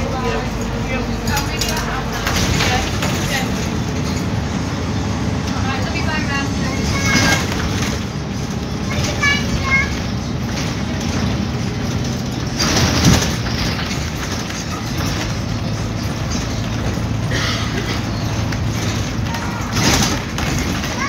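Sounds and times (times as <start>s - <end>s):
bus body rattling: 0.0s - 21.0s
bus engine drone: 0.0s - 21.0s
jolt and rattle: 8.8s - 21.0s.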